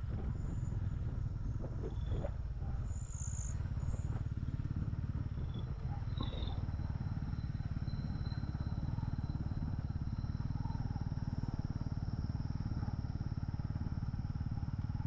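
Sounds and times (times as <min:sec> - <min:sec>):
motorcycle engine droning: 0:00.0 - 0:15.0.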